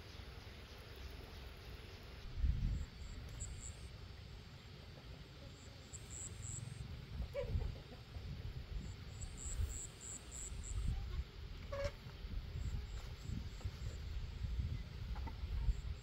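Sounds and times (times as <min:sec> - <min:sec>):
insect chirping in high pulses: 0:00.4 - 0:04.0, 0:05.6 - 0:06.9, 0:08.8 - 0:10.9.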